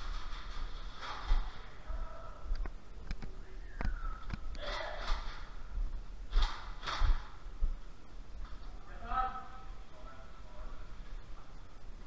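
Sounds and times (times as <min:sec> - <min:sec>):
person breathing hard: 0:01.6 - 0:02.6.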